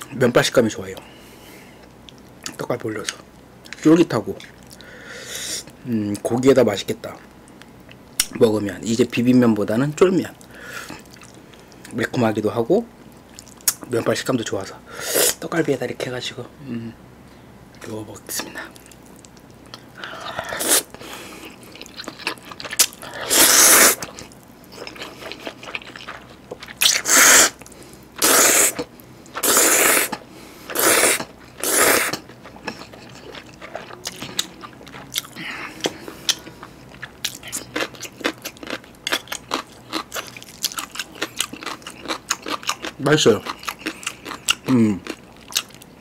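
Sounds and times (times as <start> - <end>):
wet chewing: 13.2 - 13.9, 18.7 - 45.9
noodle slurping: 22.8 - 24.2, 24.8 - 27.6, 28.2 - 33.0.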